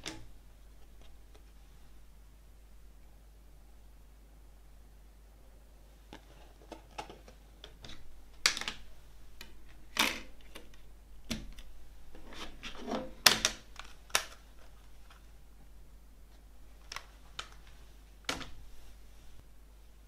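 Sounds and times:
plastic cd case clicking: 0:13.3 - 0:15.2.

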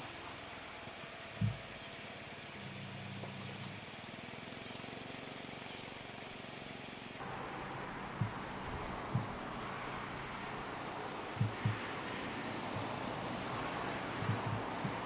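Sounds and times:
steady low hum: 0:07.2 - 0:15.0.

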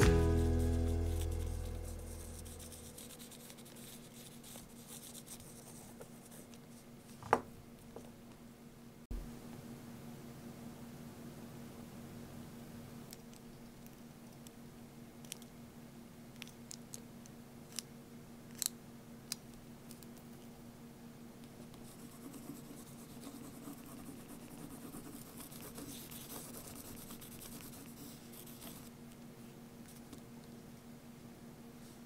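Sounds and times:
steady low hum: 0:00.0 - 0:07.0
eraser rubbing on paper: 0:00.4 - 0:06.5, 0:21.8 - 0:28.9.

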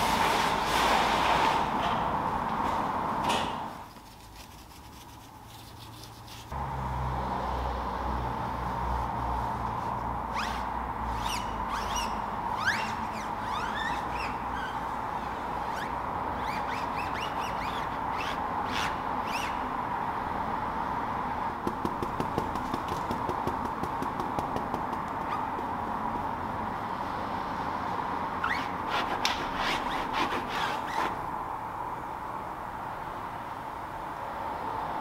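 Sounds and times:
scuffing strokes: 0:03.8 - 0:06.6
applicator pad squeaking on tyre: 0:10.3 - 0:19.6, 0:24.1 - 0:25.7, 0:28.4 - 0:31.2.

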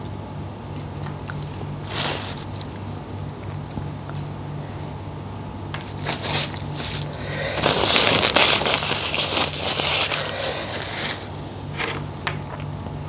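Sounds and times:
paper tissue crinkling: 0:01.8 - 0:02.8, 0:05.8 - 0:12.1.

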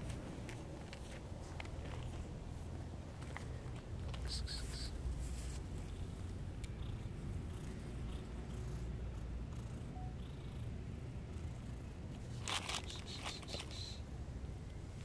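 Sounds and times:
cat purring: 0:04.2 - 0:13.7.

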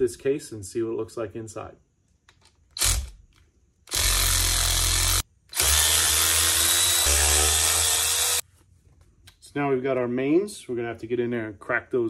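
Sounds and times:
cordless power ratchet running: 0:03.9 - 0:08.4.

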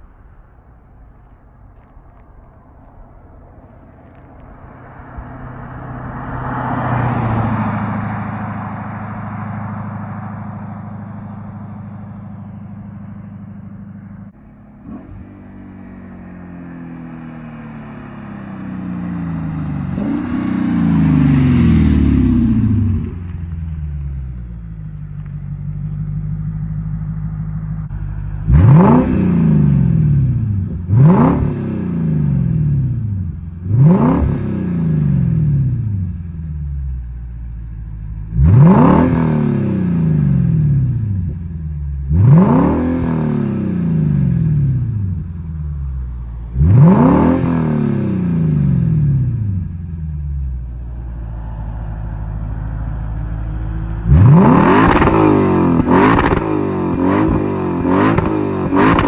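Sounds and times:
car engine free revs: 0:00.0 - 0:59.0
car engine through exhaust: 0:00.0 - 0:59.0.

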